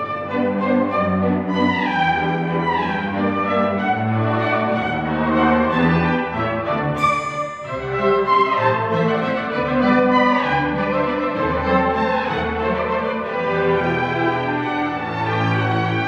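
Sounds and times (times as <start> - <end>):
string orchestra playing waltz: 0.0 - 16.0.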